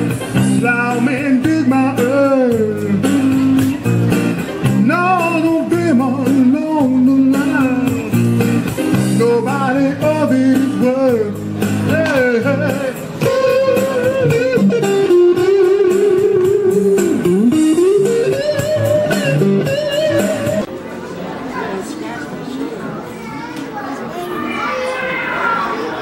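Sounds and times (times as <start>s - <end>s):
blues electric guitar: 0.0s - 20.7s.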